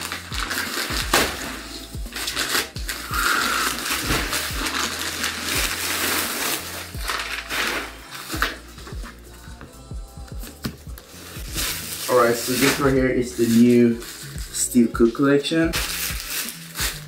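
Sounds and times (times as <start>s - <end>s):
plastic bag crackling and rustling: 0.0s - 8.4s, 11.1s - 17.0s
music beat with low kick drum: 8.4s - 11.6s.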